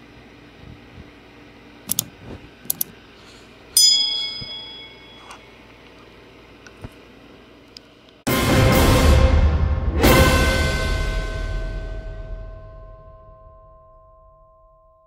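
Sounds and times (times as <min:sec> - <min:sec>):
mouse clicks: 0:01.9 - 0:02.1
notification bell ding: 0:03.8 - 0:05.4.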